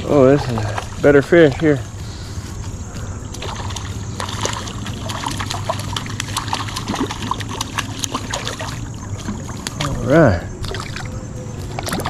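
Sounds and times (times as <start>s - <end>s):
running river water: 0.0s - 12.0s
fish splashing at water surface: 3.3s - 10.0s, 10.6s - 12.0s.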